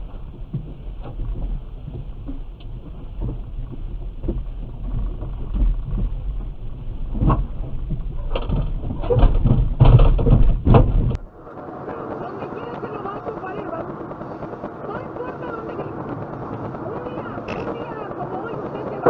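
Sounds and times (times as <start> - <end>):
knocks and clattering impacts: 0.0 - 11.2
low engine rumble: 0.0 - 19.0.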